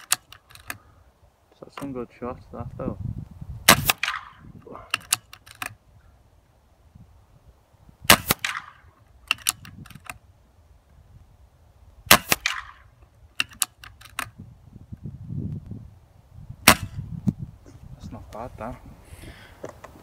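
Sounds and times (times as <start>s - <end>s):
air rifle shots: 3.6s - 5.8s, 8.0s - 10.1s, 12.1s - 14.3s, 16.6s - 17.0s.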